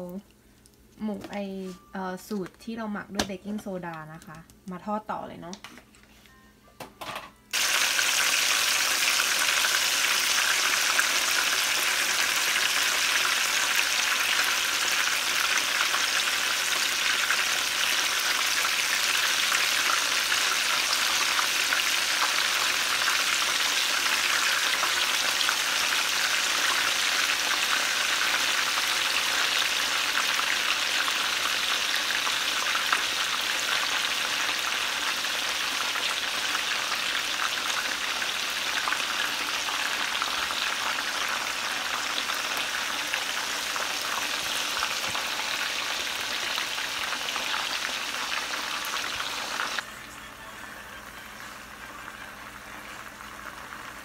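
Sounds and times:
meat sizzling in hot oil: 7.5s - 49.8s.

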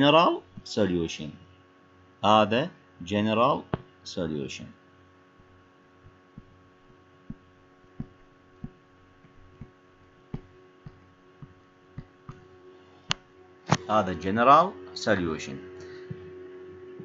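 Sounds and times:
low electrical hum: 0.0s - 17.0s
stylus tapping on tablet screen: 6.0s - 12.5s.

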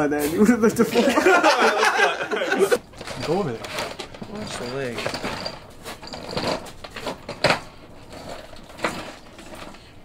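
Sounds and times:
wooden chair scraping on stone: 2.8s - 10.0s.

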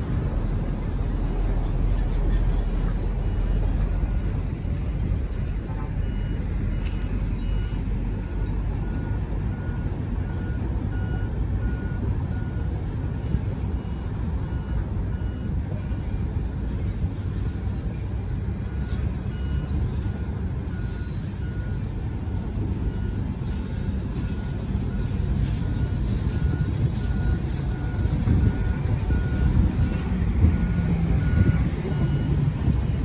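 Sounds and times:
low rumble: 0.0s - 33.0s
vehicle reversing alarm beeping: 0.0s - 33.0s.

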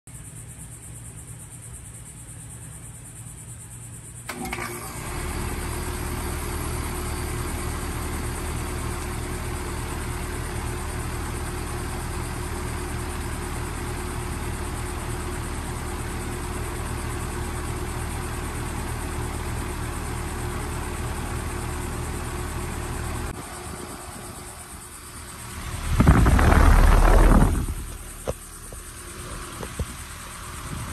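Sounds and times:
heat pump hum and whoosh: 23.2s - 30.9s.

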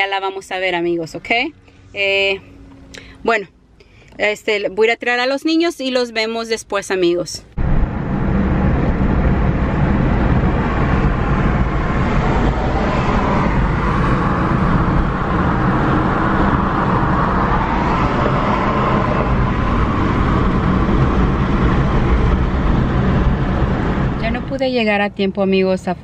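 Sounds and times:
tyre and wind rumble in car: 7.6s - 26.0s.

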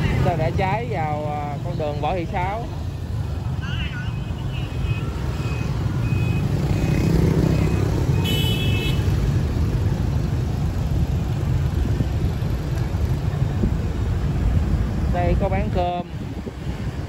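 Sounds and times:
vehicle horn toot: 8.2s - 9.1s.

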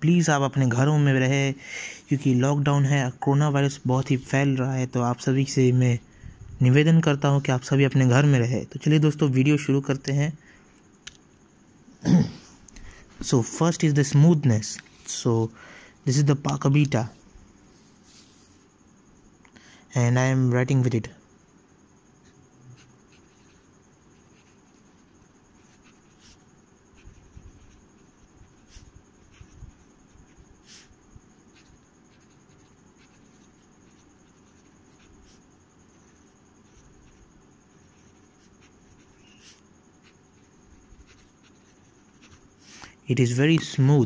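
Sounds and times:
pen nib scratching paper: 22.8s - 30.9s, 31.5s - 42.8s.

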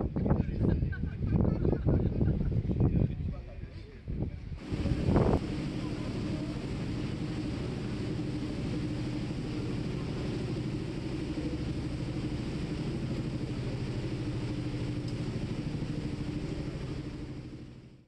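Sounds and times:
ferry engine droning: 4.6s - 18.0s.

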